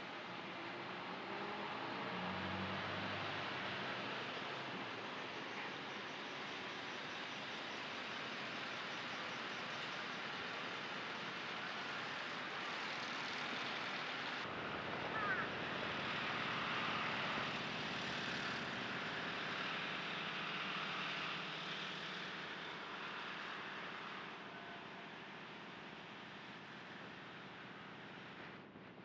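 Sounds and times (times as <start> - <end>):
distant vehicle noise: 0.0 - 29.0.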